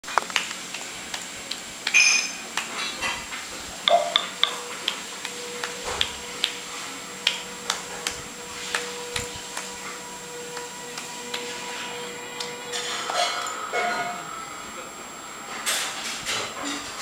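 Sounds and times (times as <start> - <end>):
woman clapping hands slowly: 0.1 - 3.0, 3.9 - 12.7.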